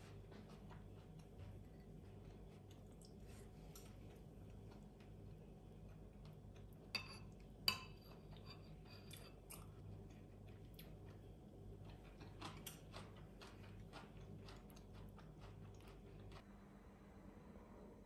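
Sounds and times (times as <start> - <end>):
spoon clinking on ceramic bowl: 6.9 - 9.4
spoon scraping in soup: 7.0 - 9.6.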